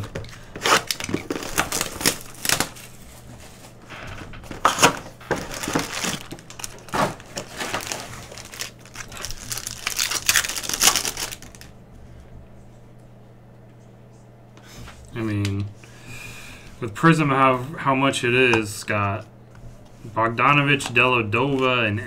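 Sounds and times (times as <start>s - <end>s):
wrapper tearing: 0.0s - 3.0s, 4.6s - 11.7s
plastic and foil crinkling: 0.0s - 11.7s.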